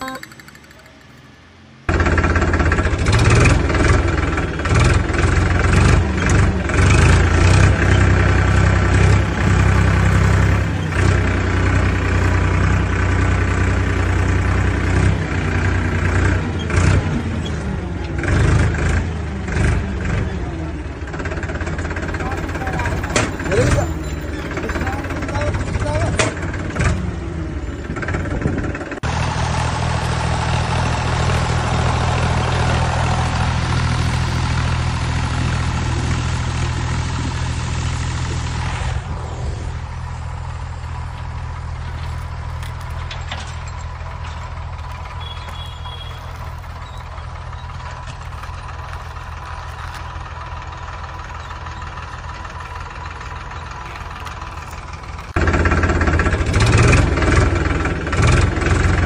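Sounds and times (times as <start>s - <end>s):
toy backhoe motor drone: 0.0s - 1.4s, 41.9s - 56.8s.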